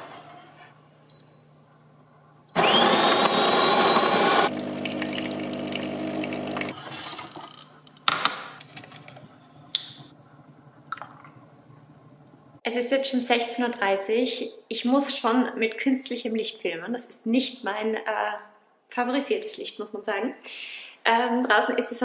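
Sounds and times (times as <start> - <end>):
espresso machine pump humming: 2.6 - 6.7
coffee grinder whine: 2.6 - 6.8.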